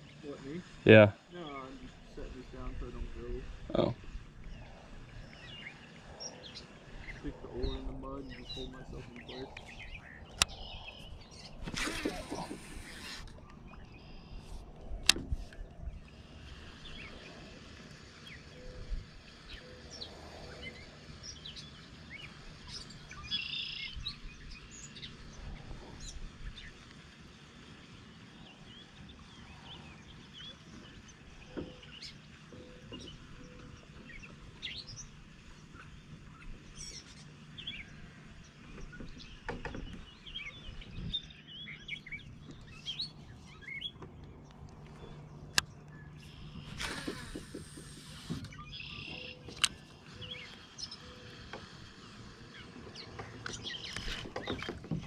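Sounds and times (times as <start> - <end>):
songbirds chirping: 0.0 - 55.0
fishing rod cast click: 15.0 - 15.6.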